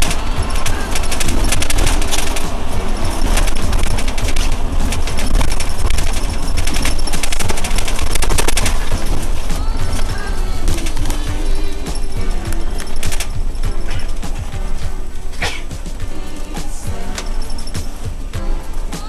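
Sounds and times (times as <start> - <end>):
bus rumbling on road: 0.0 - 19.0
rapid rattle inside bus: 0.0 - 19.0.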